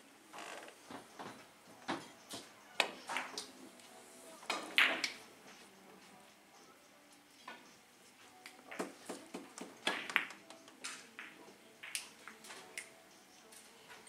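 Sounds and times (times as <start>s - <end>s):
billiard balls clicking: 4.5s - 5.2s, 8.4s - 12.9s.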